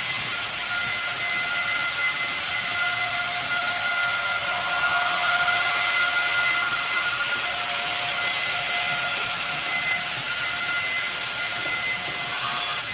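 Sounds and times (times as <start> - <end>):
small electric motor whine: 0.1 - 12.9.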